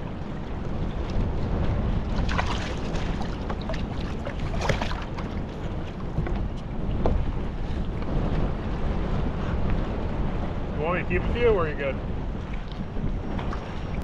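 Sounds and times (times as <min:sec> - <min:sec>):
crackling splashes: 0:00.0 - 0:06.1
water lapping at kayak: 0:00.0 - 0:14.0
wind buffeting microphone: 0:00.0 - 0:14.0.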